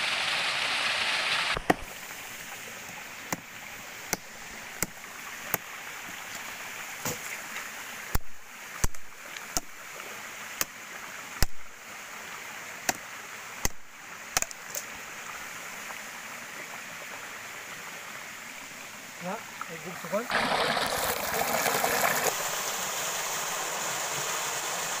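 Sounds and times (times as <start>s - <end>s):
waterfall rushing: 0.0s - 6.7s, 19.2s - 25.0s.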